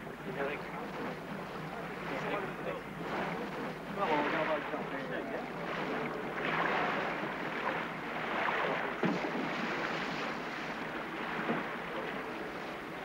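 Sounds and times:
water splashing and churning: 0.0 - 13.0.

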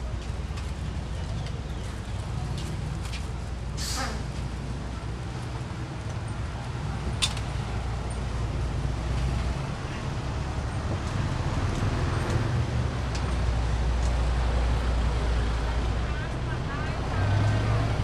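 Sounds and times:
low rumble of street traffic: 0.0 - 18.0.

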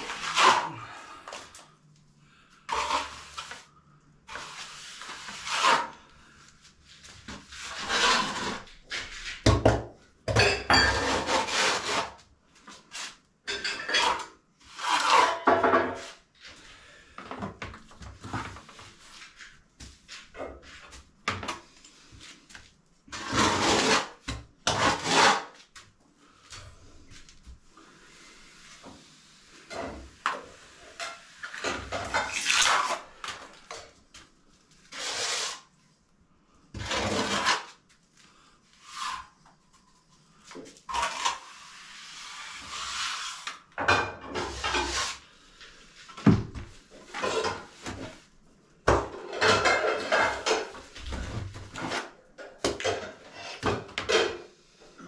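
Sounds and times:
trowel scraping plaster: 0.0 - 1.6, 2.7 - 3.7, 4.3 - 6.4, 7.1 - 9.4, 10.9 - 13.2, 13.9 - 16.2, 23.1 - 25.7, 29.6 - 33.5, 34.8 - 35.8, 36.7 - 37.8, 38.7 - 39.4, 40.8 - 43.6, 44.3 - 45.3, 51.7 - 52.2.

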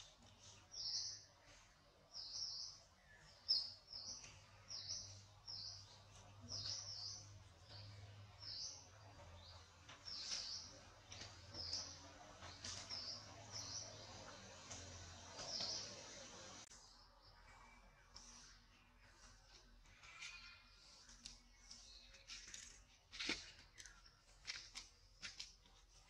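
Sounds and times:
bird chirping: 0.0 - 18.5.

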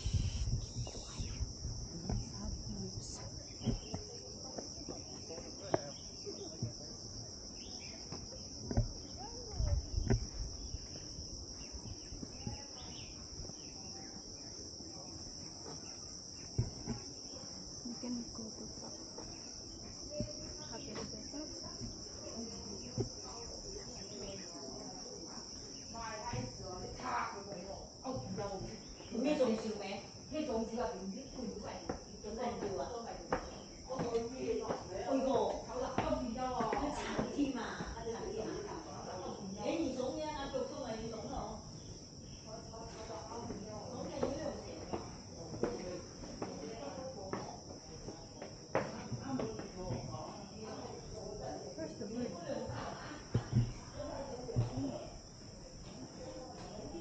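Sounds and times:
low thumps: 0.0 - 4.1, 8.6 - 12.8, 20.0 - 24.0
high-pitched insect chorus: 0.0 - 57.0.

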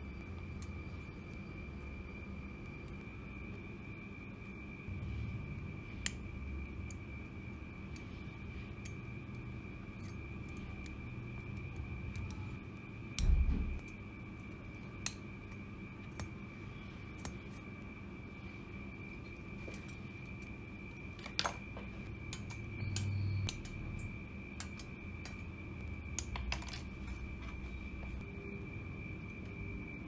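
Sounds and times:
faint high-pitched whine: 0.0 - 30.0
tweezers tapping metal parts: 8.8 - 12.5, 21.2 - 25.4.

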